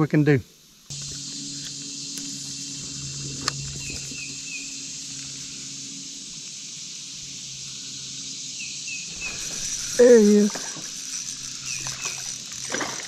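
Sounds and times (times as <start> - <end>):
outdoor hiss and hum: 0.0 - 13.0
bird chirps: 1.4 - 5.6, 7.8 - 10.5, 11.4 - 12.4
fishing reel cranking: 9.1 - 13.0.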